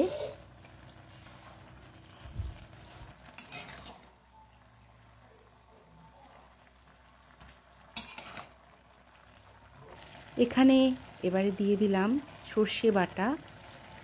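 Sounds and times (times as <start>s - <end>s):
spatula scraping pan: 0.0s - 0.4s, 2.8s - 4.2s, 8.0s - 8.6s
metal spatula stirring vegetables: 2.6s - 4.2s, 7.8s - 8.6s.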